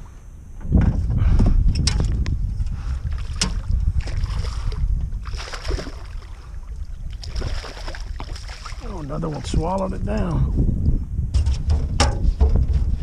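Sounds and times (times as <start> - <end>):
wind rumble on microphone: 0.0 - 13.0
fish splashing at the surface: 3.1 - 6.4, 7.1 - 8.9.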